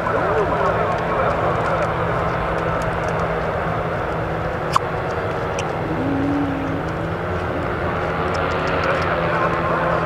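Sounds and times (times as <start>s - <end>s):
paramotor engines droning: 5.6s - 9.2s.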